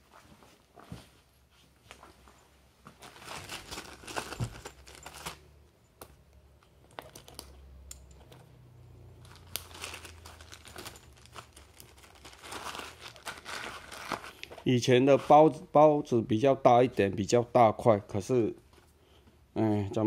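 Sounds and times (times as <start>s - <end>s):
fabric and plastic bag rustling: 0.0s - 5.5s, 9.2s - 15.6s.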